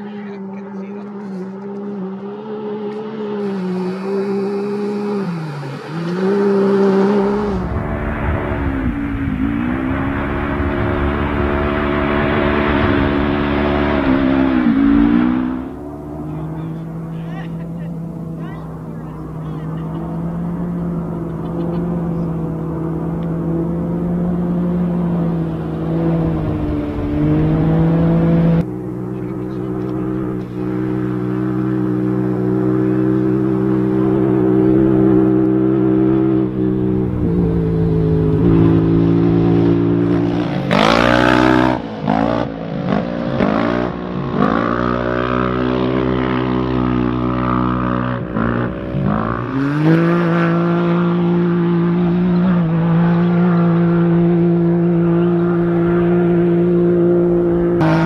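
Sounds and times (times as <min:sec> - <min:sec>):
race car engines revving past: 0:00.0 - 0:58.0
steady engine drone: 0:00.0 - 0:58.0.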